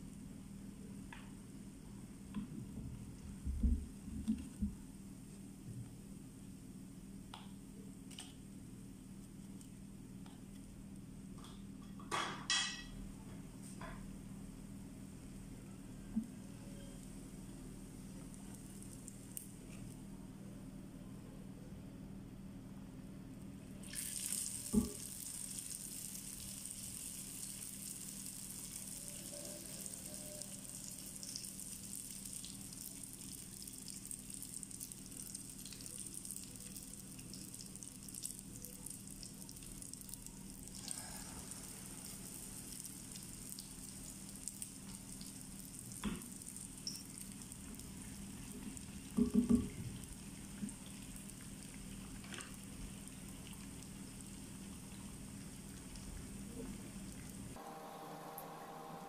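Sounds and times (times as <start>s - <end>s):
dough sizzling in hot oil: 17.2s - 19.9s, 23.8s - 57.6s.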